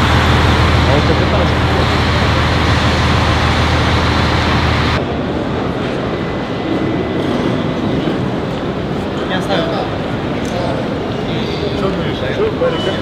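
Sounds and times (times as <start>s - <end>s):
bus engine idling: 0.0s - 5.0s
terminal hall hum: 0.0s - 13.0s
traffic noise: 0.0s - 13.0s.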